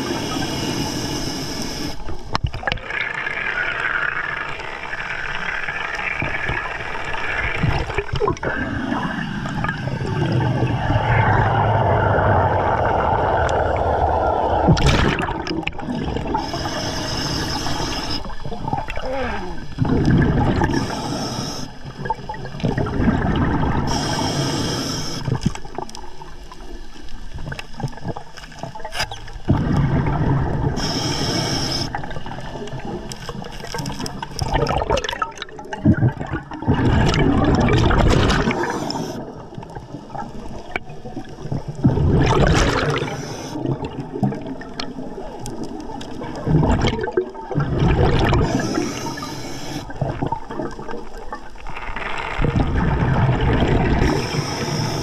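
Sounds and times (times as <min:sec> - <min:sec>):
regulator inhale hiss: 0:00.0 - 0:02.1, 0:16.1 - 0:18.4, 0:20.6 - 0:22.0, 0:23.8 - 0:25.6, 0:30.8 - 0:32.2, 0:38.5 - 0:39.4, 0:42.9 - 0:43.7, 0:48.4 - 0:50.0, 0:54.0 - 0:55.0
exhaled bubbles gurgling: 0:00.0 - 0:55.0.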